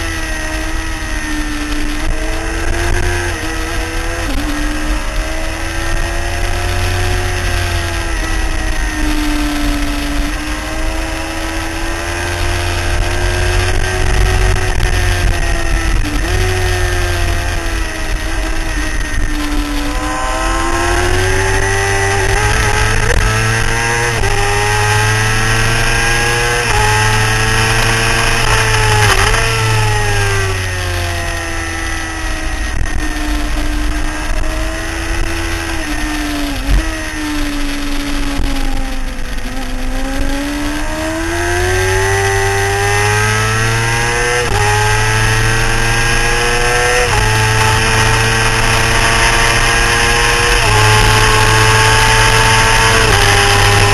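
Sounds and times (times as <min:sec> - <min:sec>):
motorcycle engine revving: 0:00.0 - 0:53.9
wind rush: 0:07.3 - 0:42.4.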